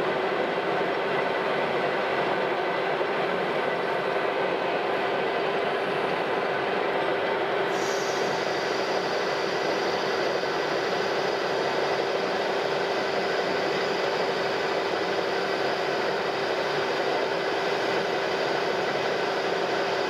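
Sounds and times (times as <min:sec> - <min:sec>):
lathe cutting hiss: 0:07.6 - 0:20.0.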